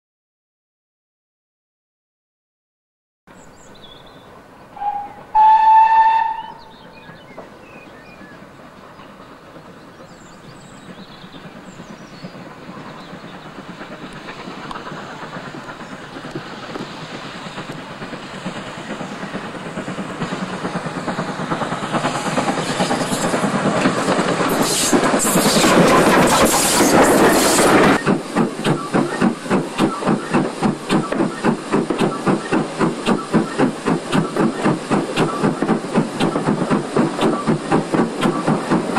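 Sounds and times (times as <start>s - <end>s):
steam locomotive rumble and hiss: 3.4s - 38.9s
steam locomotive whistle: 4.7s - 6.8s
rhythmic steam engine beat: 10.9s - 38.9s.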